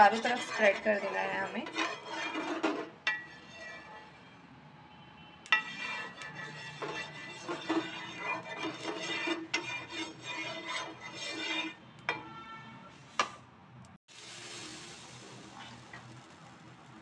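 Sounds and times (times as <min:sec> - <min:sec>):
wooden spatula scraping pan: 0:00.0 - 0:04.3, 0:05.5 - 0:12.4
steady hiss: 0:14.1 - 0:17.0.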